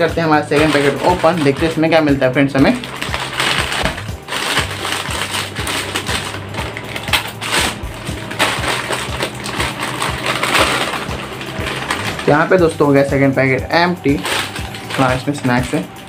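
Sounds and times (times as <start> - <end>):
background music: 0.0 - 16.0
corn puffs pouring and rattling: 0.0 - 16.0
plastic packet crinkling: 0.1 - 16.0.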